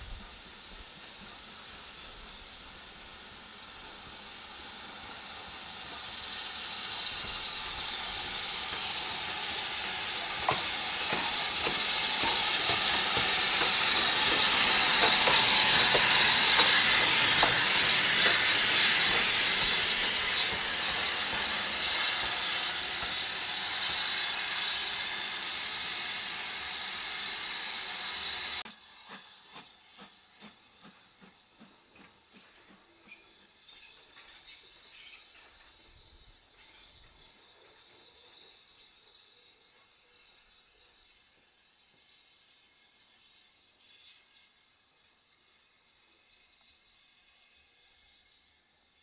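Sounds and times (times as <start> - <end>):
steam hissing: 0.0 - 49.0
wheels clicking on rails: 5.8 - 27.0.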